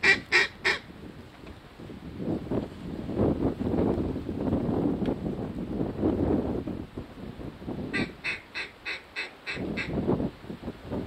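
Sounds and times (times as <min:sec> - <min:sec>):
duck quacking: 0:00.0 - 0:00.8, 0:07.9 - 0:09.9
lower louder quacks: 0:00.0 - 0:00.8, 0:07.9 - 0:09.9.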